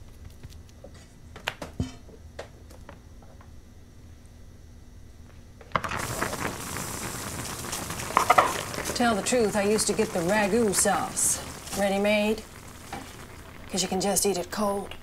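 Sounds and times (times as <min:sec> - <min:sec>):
meatball sizzling in hot sauce: 0:05.8 - 0:15.0.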